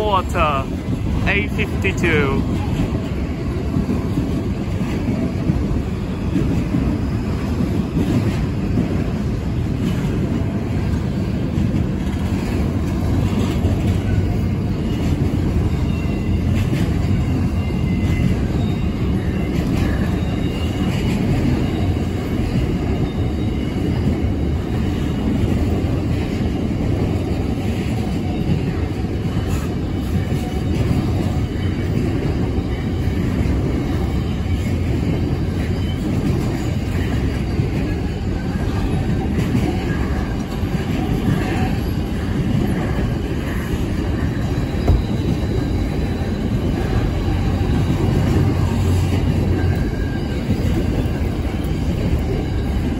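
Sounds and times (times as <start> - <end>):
train wheels rumbling on rail: 0.0 - 52.9
high wheel squeal: 42.9 - 52.9.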